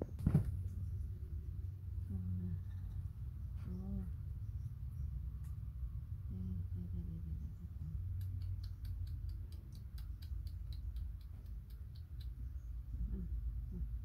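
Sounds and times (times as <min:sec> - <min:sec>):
low steady hum: 0:00.0 - 0:14.0
small sharp clicks: 0:08.1 - 0:12.7.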